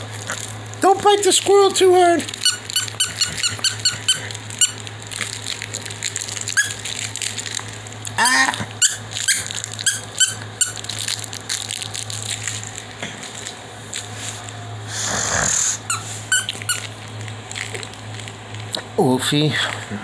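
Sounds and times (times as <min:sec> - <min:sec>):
squeaky toy squeaking: 0:02.4 - 0:04.8, 0:06.5 - 0:06.8, 0:08.2 - 0:10.8, 0:15.9 - 0:16.9.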